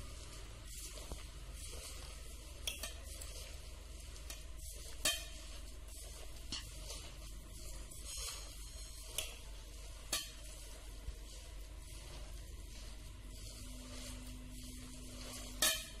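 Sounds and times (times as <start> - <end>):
hand squelching wet batter: 0.0 - 16.0
clinks against steel bowl: 15.5 - 16.0.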